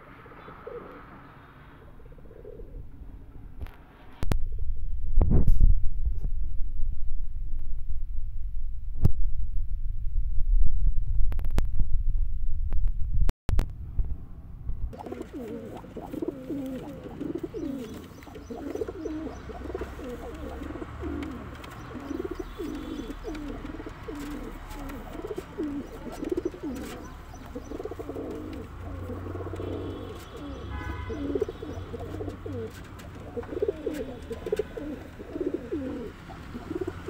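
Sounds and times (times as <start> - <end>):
pigeons cooing: 0.0 - 3.0, 15.0 - 37.0
low rumble: 4.2 - 15.0.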